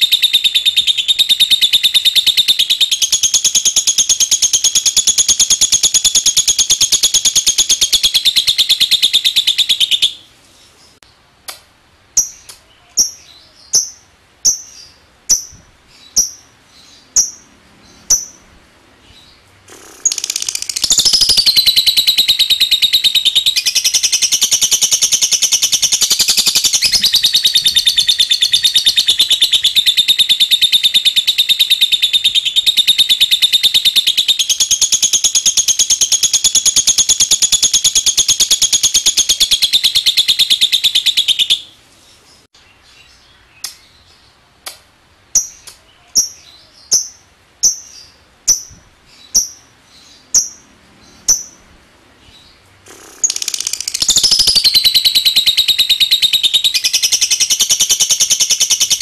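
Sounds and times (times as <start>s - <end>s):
lovebird sharp chirps: 0.0s - 10.2s, 12.2s - 18.5s, 19.1s - 41.7s, 44.7s - 49.7s, 50.3s - 51.6s, 52.9s - 59.0s
lovebird trilling: 0.0s - 10.2s, 12.2s - 18.5s, 19.1s - 41.7s, 50.3s - 51.7s, 52.4s - 59.0s.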